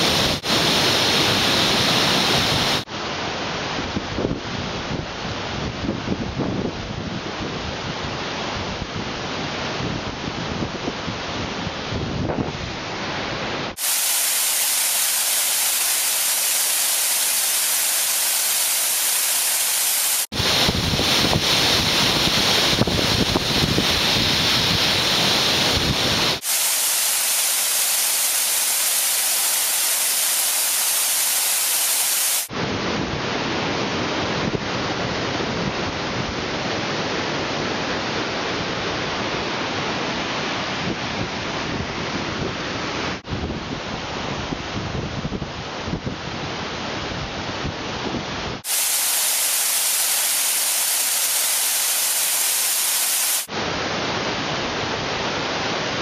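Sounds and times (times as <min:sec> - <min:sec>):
waterfall rushing and splashing: 0:00.0 - 0:03.6, 0:13.0 - 0:32.7, 0:48.6 - 0:56.0.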